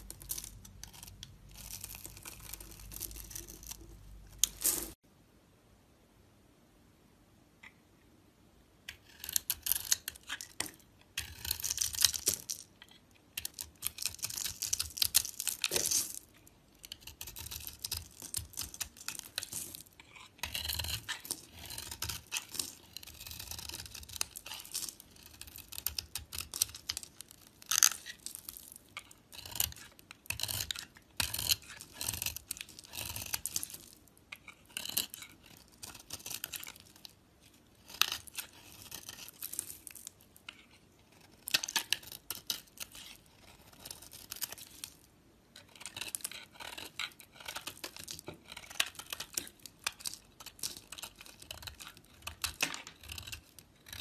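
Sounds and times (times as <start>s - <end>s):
knife blade scraping soap: 0.0s - 5.0s, 8.9s - 54.0s.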